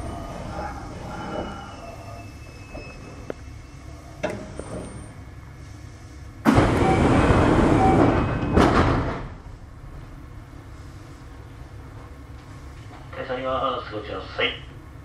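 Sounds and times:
loud hiss of air: 5.5s - 6.6s
low rumble: 6.5s - 12.8s.

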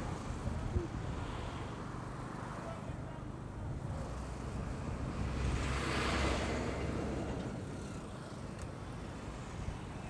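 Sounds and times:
road noise: 0.0s - 10.0s.

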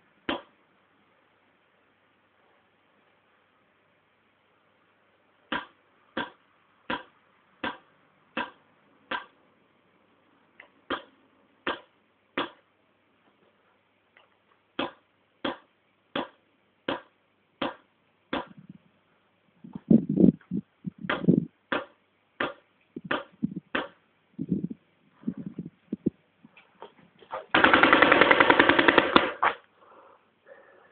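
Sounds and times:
dull low thumps: 19.7s - 21.5s.

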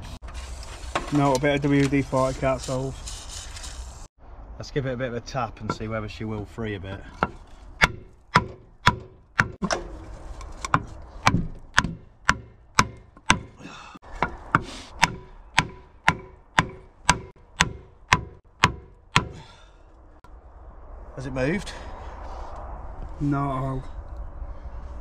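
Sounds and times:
hammer blows on wooden post: 7.2s - 9.6s, 11.2s - 19.7s.

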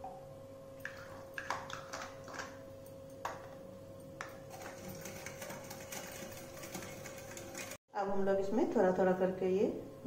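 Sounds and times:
whisk tapping glass bowl: 4.2s - 7.8s.

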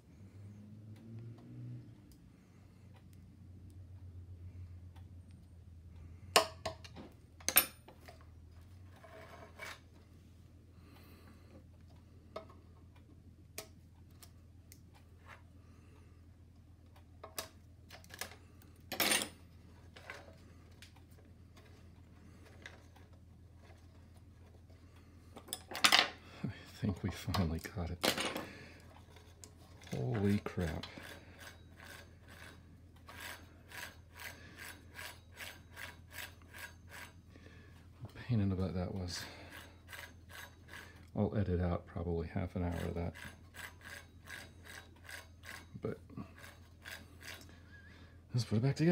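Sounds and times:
tools clinking on metal: 6.4s - 8.2s, 18.9s - 19.4s
soft clicks and scrapes: 8.0s - 10.2s
scraping rub: 8.9s - 9.9s, 28.8s - 37.3s.

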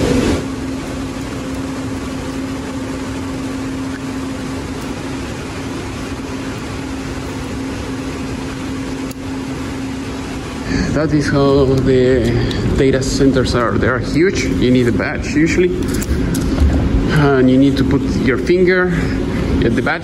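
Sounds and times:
cooling fans whooshing: 0.0s - 20.0s
low hum: 0.0s - 20.0s.

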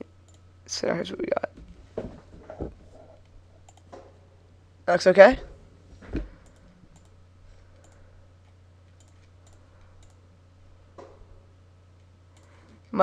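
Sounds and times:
low electrical hum: 0.0s - 13.0s
faint computer mouse clicks: 3.7s - 3.9s, 6.4s - 7.2s, 7.8s - 10.2s.

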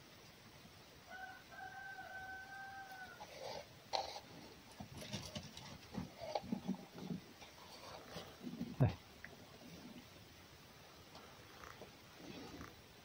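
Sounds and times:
rooster crowing: 1.1s - 3.4s
knocks and rustling: 4.0s - 8.8s.

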